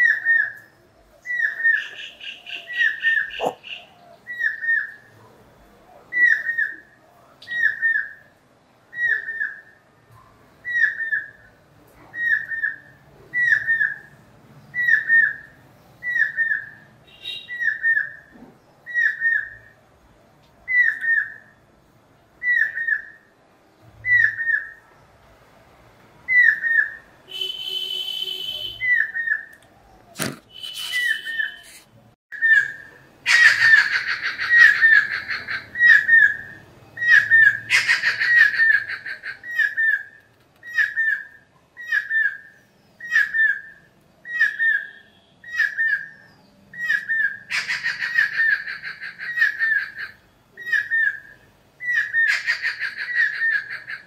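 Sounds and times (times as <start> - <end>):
bird rapid chatter: 1.6 - 3.9, 30.1 - 31.8, 37.0 - 40.1
harsh buzzy bird call: 1.6 - 4.9, 30.1 - 40.1.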